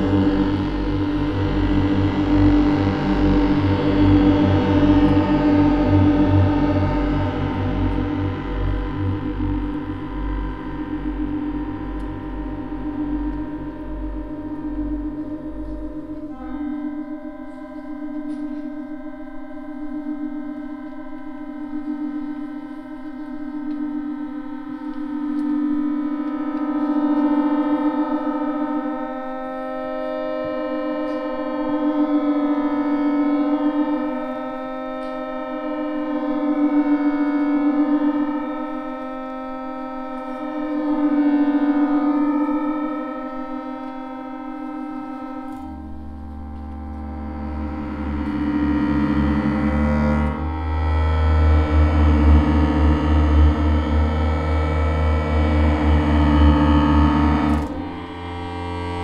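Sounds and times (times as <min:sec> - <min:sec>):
low pulsing bass: 0:00.0 - 0:17.6, 0:39.3 - 0:59.0
accordion droning chords: 0:00.0 - 0:59.0.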